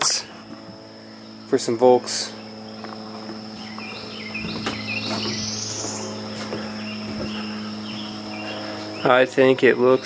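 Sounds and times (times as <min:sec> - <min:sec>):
insect chorus: 0:00.0 - 0:10.0
low steady hum: 0:00.0 - 0:10.0
rising buzzing call: 0:00.0 - 0:10.0
bird chirps: 0:02.3 - 0:10.0.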